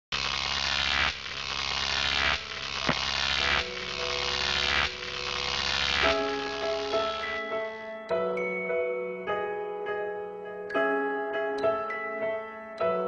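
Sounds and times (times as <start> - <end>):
low hum: 0.2 - 7.4
buzzy synth swells: 0.2 - 7.8.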